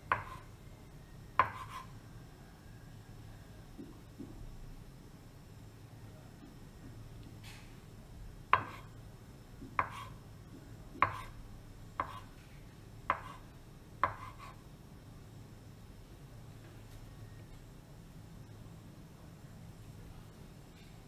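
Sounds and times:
knife chopping on wooden board: 0.1 - 0.4, 1.4 - 1.9, 8.5 - 8.9, 9.6 - 10.1, 11.0 - 11.4, 12.0 - 12.3, 13.1 - 13.4, 14.0 - 14.6.

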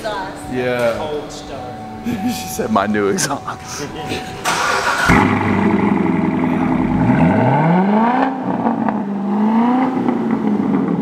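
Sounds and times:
car engine starting and revving: 4.2 - 11.0.

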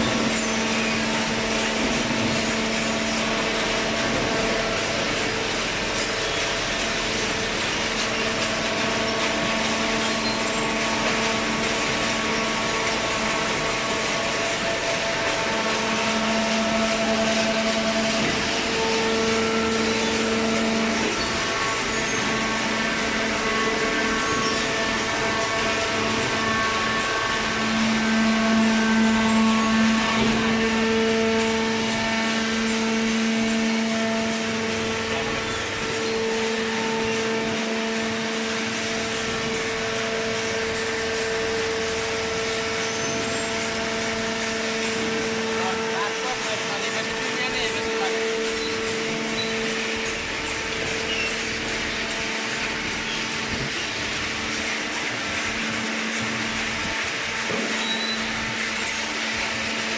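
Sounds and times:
machine drone with hum tones: 0.0 - 59.9.

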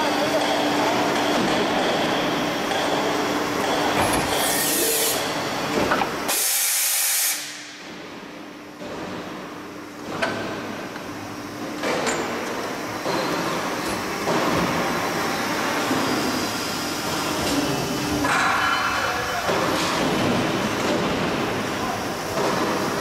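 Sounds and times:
loud air hisses: 4.3 - 5.3, 6.3 - 7.7.

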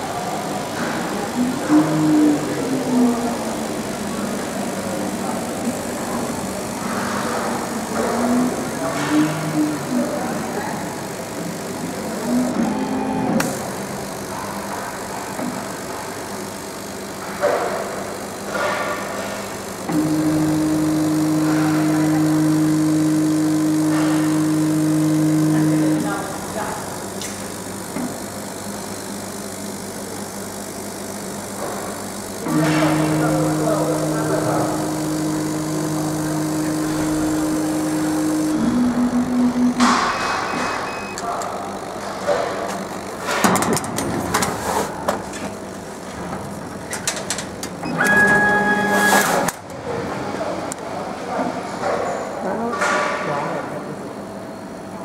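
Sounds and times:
laser cutter two-note hum: 1.0 - 14.7, 19.7 - 42.0, 47.9 - 49.6.

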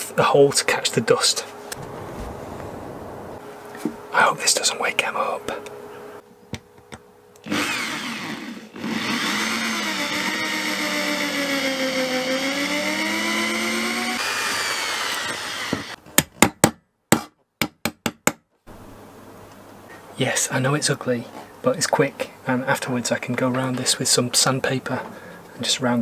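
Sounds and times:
electric drill whining under load: 7.4 - 16.0.

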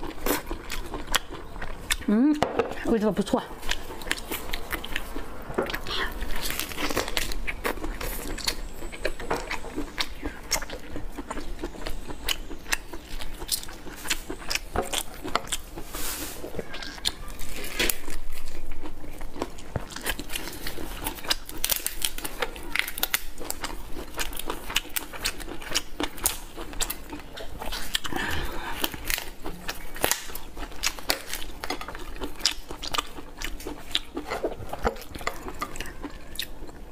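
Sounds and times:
lobster shell cracking: 19.6 - 25.1, 27.2 - 36.0.

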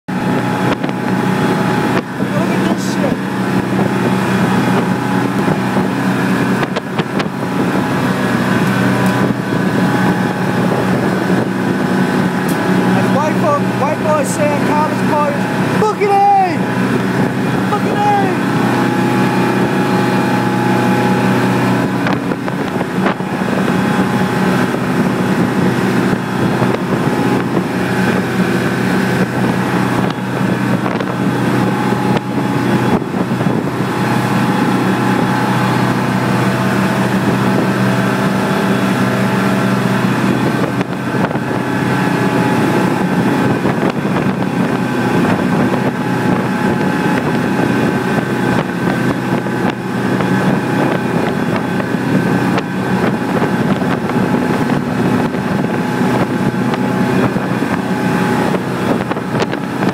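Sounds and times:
boat engine running steadily: 0.0 - 59.9
churning wake water rushing: 0.1 - 59.9
wind buffeting microphone: 0.1 - 59.9.

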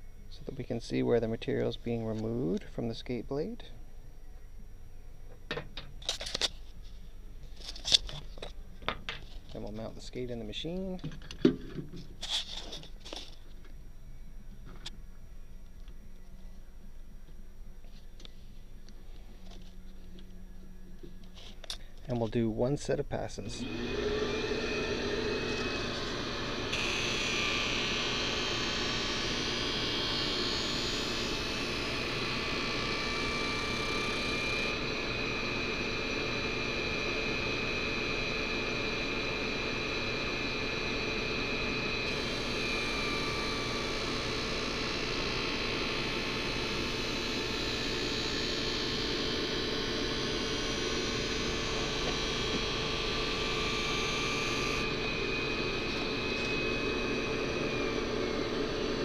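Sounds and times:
blade grinding on grinding wheel: 23.6 - 59.0
sharpening machine motor hum: 23.6 - 59.0.

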